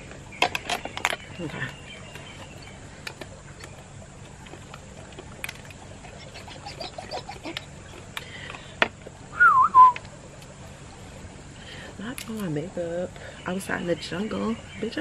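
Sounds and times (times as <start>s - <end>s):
faint steady high hiss: 0.0s - 15.0s
whistled call: 9.3s - 10.1s.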